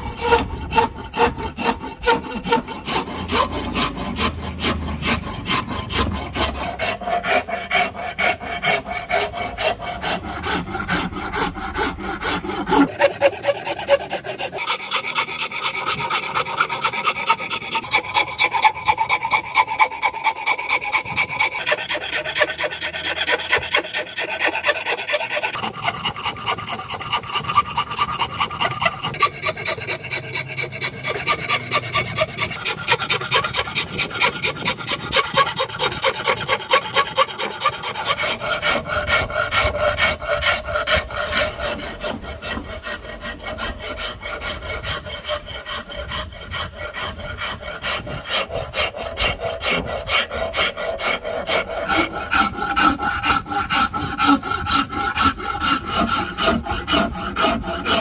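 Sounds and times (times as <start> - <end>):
file rasping on wood: 0.0 - 58.0.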